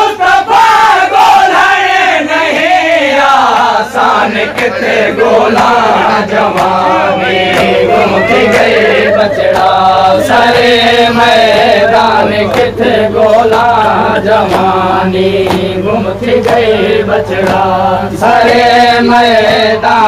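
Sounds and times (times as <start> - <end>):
men chanting a lament: 0.0 - 20.0.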